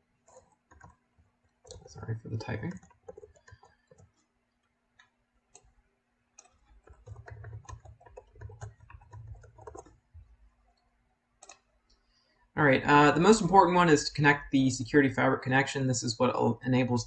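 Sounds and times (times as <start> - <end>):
keyboard typing: 0.2 - 11.7.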